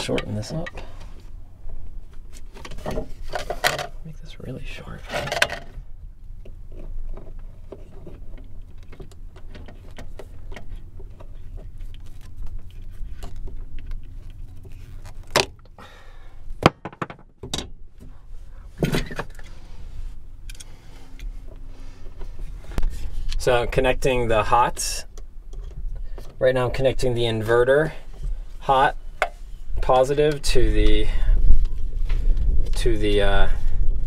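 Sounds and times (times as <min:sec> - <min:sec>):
steady low hum: 0:00.0 - 0:34.0
wire rustling: 0:06.6 - 0:15.7.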